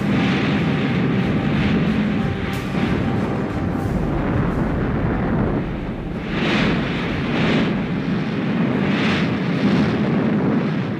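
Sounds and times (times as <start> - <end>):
heavy rumble: 0.0 - 10.9
rockets whooshing: 0.0 - 10.9.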